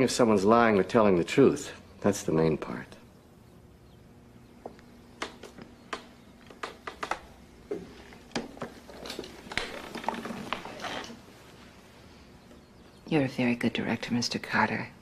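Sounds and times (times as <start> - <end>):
light taps and clicks: 4.6 - 9.7.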